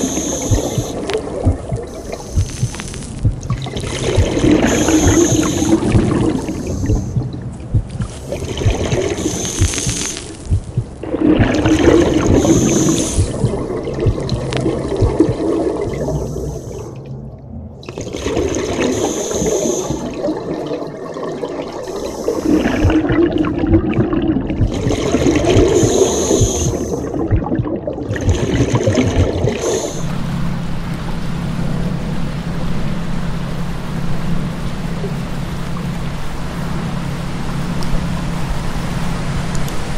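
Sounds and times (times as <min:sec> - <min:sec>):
steady low hum: 0:00.0 - 0:20.8, 0:21.8 - 0:39.9
exhaled bubbles gurgling: 0:00.0 - 0:30.2.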